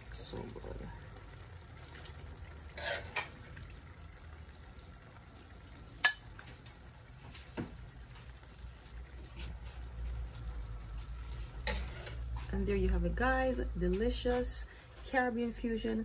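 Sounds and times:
spoon stirring food in a pan: 0:01.7 - 0:03.9, 0:05.8 - 0:12.7
spoon clinking against pan: 0:06.0 - 0:06.4.

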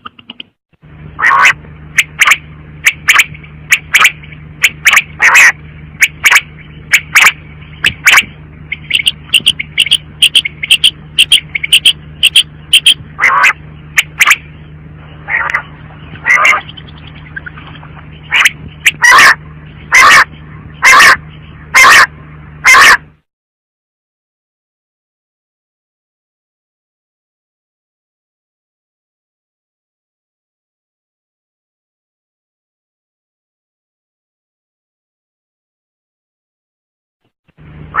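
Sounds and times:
low hum: 0:00.0 - 0:23.3, 0:37.6 - 0:38.0
quail calling: 0:01.2 - 0:23.1.

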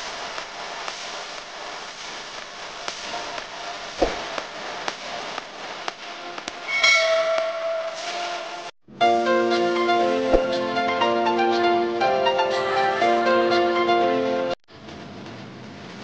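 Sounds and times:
sharp knock: 0:04.0 - 0:04.5.

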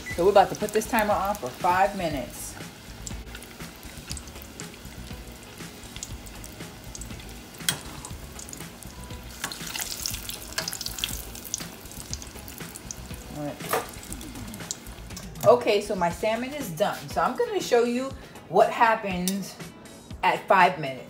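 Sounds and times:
fish sizzling in hot oil: 0:00.0 - 0:15.2.

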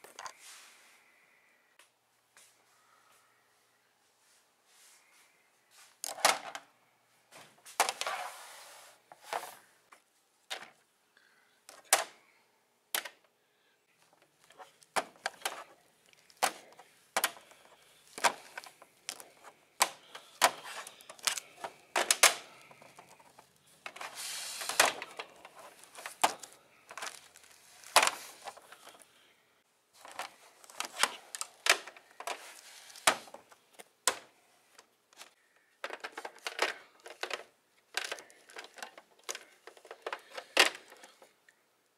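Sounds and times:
handling rustle: 0:14.0 - 0:29.0
plastic toys clacking together: 0:14.2 - 0:24.1, 0:35.2 - 0:41.3.

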